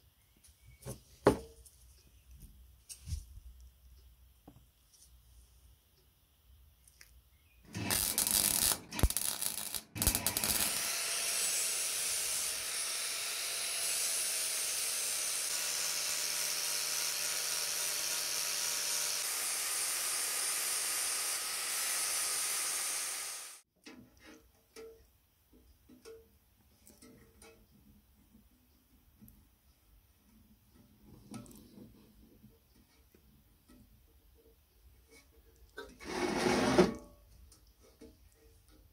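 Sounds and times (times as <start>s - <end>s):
angle grinder grinding steel: 7.7s - 23.6s.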